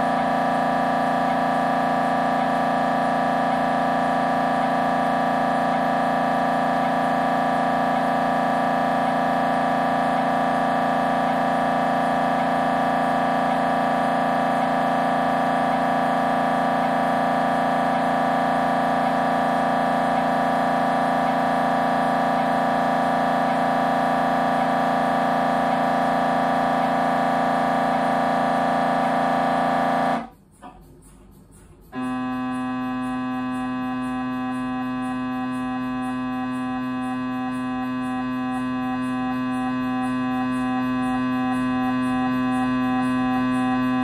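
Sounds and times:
mri scanner buzzing: 0:00.0 - 0:44.0
faint regular ticking: 0:30.2 - 0:44.0.

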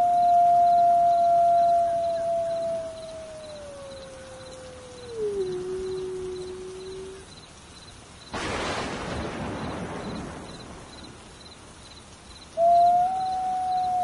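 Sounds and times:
wolf howling: 0:00.0 - 0:07.2, 0:12.6 - 0:14.0.

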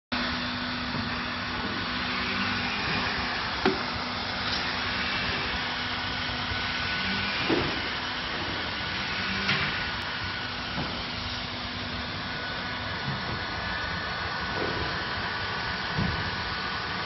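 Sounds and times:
hot-air gun blowing: 0:00.9 - 0:11.9.

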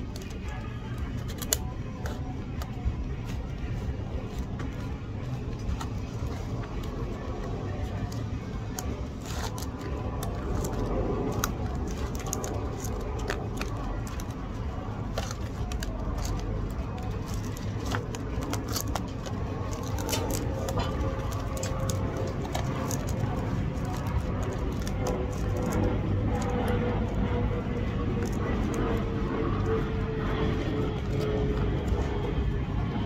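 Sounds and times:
faint background voices: 0:00.0 - 0:33.0
low hum: 0:00.0 - 0:33.0.

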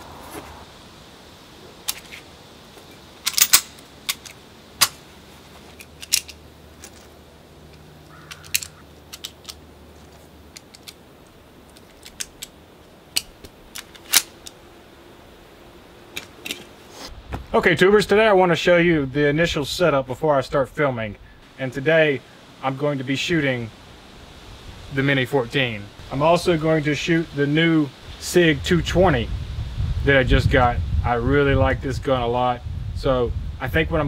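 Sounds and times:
metallic pistol handling clicks: 0:03.2 - 0:05.0, 0:05.8 - 0:07.1, 0:07.7 - 0:14.6.

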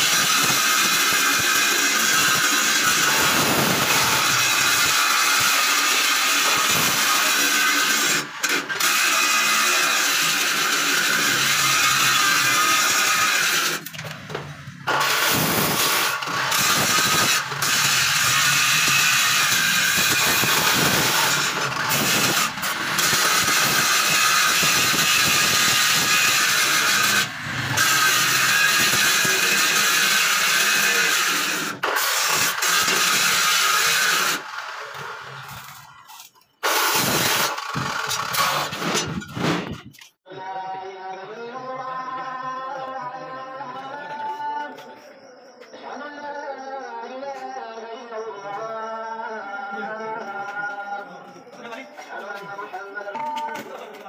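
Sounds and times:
arc welding crackling hiss: 0:00.0 - 0:08.2, 0:15.1 - 0:31.7.

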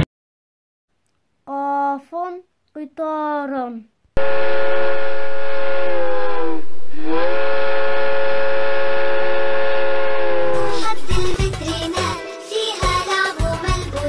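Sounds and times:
train whistle blowing: 0:04.2 - 0:10.8.

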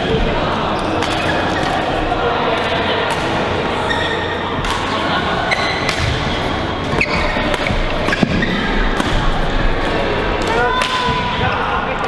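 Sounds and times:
shoes squeaking on court: 0:03.8 - 0:04.4, 0:05.5 - 0:08.9.

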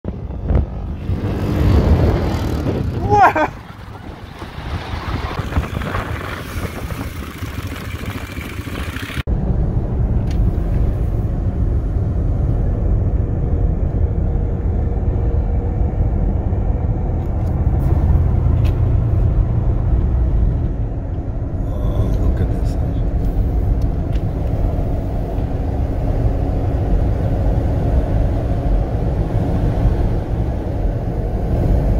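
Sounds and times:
atv engine running: 0:00.1 - 0:10.0.

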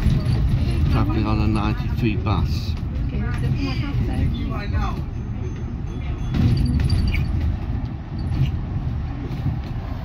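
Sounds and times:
bus engine and road rumble: 0:00.0 - 0:10.0
bus fittings rattling: 0:02.6 - 0:09.9.

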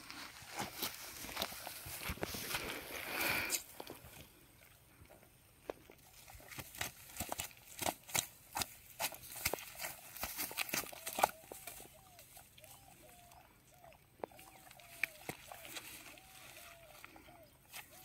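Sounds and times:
dry grass and net crackling: 0:00.0 - 0:04.5, 0:05.6 - 0:18.0
faint wavering call: 0:10.9 - 0:18.0.

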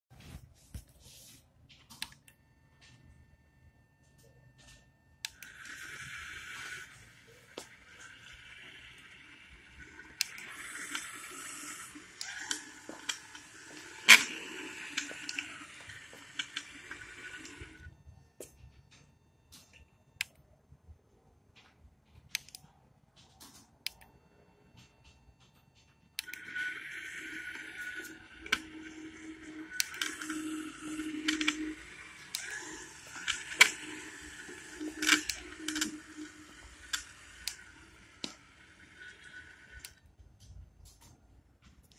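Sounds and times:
robot motors whirring: 0:05.4 - 0:17.9, 0:26.2 - 0:40.0.

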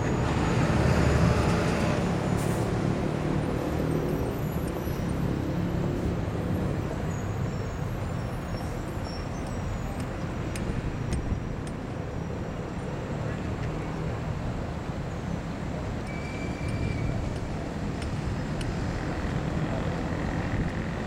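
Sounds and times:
steady traffic noise: 0:00.0 - 0:21.0.

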